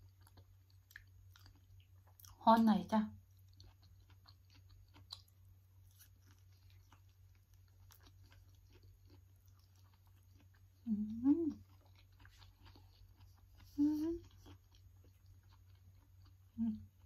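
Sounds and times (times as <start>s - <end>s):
wet chewing: 0.0s - 2.4s, 3.3s - 17.0s
person humming mmm: 10.8s - 11.7s, 13.7s - 14.4s, 16.5s - 17.0s.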